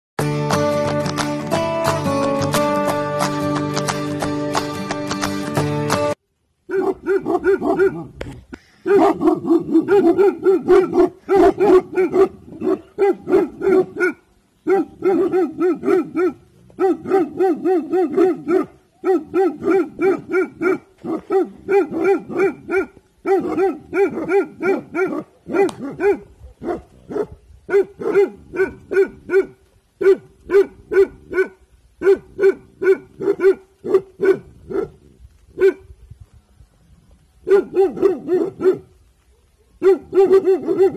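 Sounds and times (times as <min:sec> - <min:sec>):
dogs barking: 0:06.7 - 0:08.1, 0:08.8 - 0:35.0, 0:35.6 - 0:35.9, 0:37.4 - 0:40.9.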